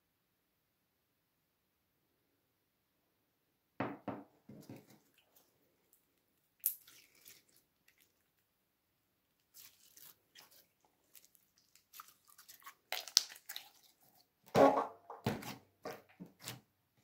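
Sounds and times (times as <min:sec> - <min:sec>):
slime squishing: 0:06.6 - 0:08.5, 0:09.3 - 0:14.5, 0:15.2 - 0:16.7.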